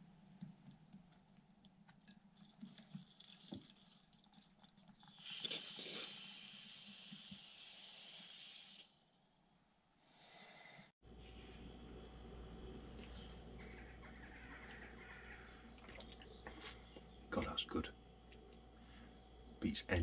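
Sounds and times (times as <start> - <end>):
air hissing through coffee filter: 5.0 - 9.0.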